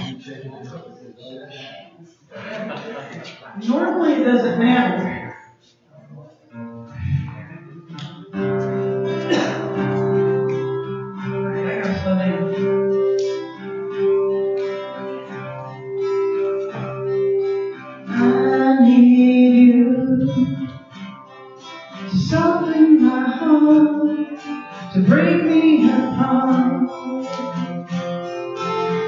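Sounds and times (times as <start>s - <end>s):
acoustic guitar strumming chords: 3.6s - 5.6s, 6.5s - 29.0s
person singing: 11.2s - 13.2s, 18.0s - 20.9s, 22.0s - 28.2s.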